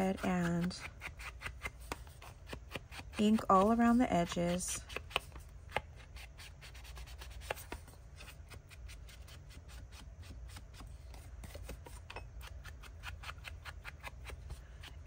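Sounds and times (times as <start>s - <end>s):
soft taps and scuffs on paper: 4.8s - 5.9s, 6.8s - 12.2s.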